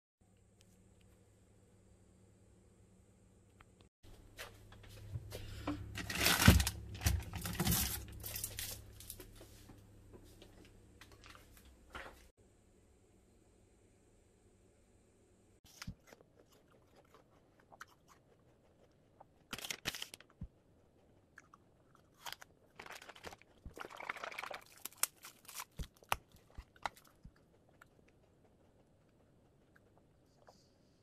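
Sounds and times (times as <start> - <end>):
person chewing crunchy food: 15.7 - 30.7.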